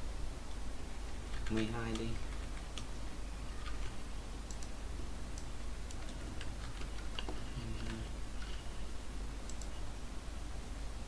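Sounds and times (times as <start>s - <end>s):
steady low hum: 0.0s - 11.0s
keyboard and mouse clicking: 1.3s - 8.0s, 9.4s - 9.8s.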